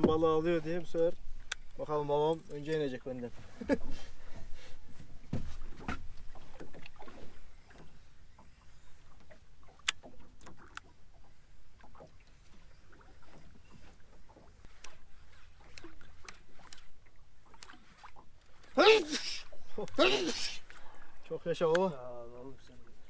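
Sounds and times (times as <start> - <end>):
water lapping against boat hull: 0.0 - 23.0
small knocks and clicks: 9.2 - 10.9.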